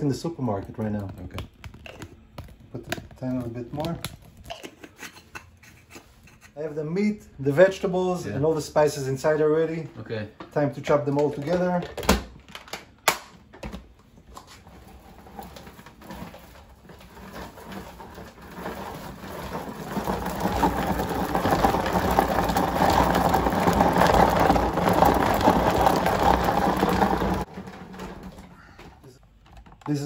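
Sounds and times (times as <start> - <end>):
food chopper running: 17.0 - 28.2.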